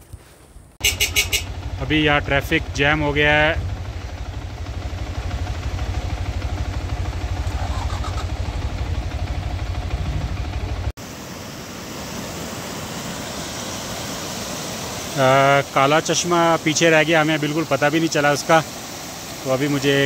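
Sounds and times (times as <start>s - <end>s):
motorcycle engine idling: 0.8s - 10.9s
fast-flowing river rushing: 11.0s - 20.0s.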